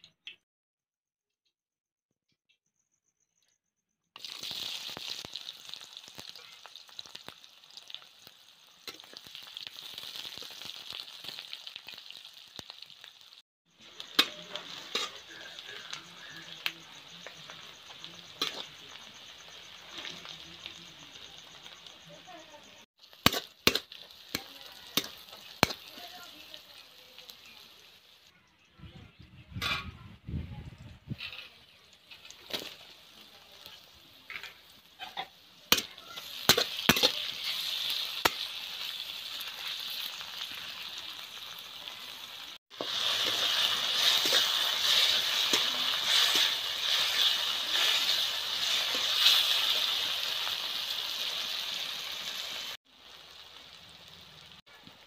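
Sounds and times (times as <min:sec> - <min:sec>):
onions sizzling in hot oil: 0:04.2 - 0:28.3, 0:31.1 - 0:55.0
metal spatula scraping a pan: 0:14.0 - 0:16.3, 0:42.8 - 0:50.0.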